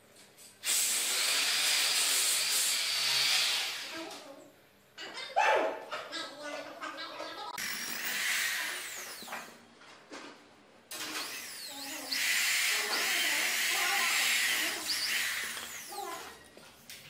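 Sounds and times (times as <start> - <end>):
electric drill boring into wood: 0.6 - 3.9, 7.6 - 9.6, 10.9 - 16.1.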